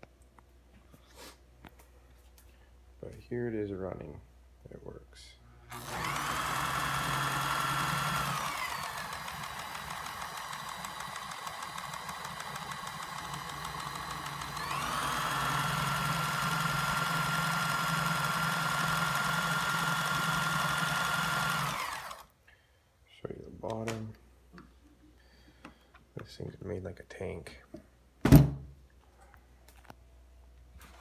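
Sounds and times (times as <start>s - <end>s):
sewing machine motor whining: 5.7s - 22.3s.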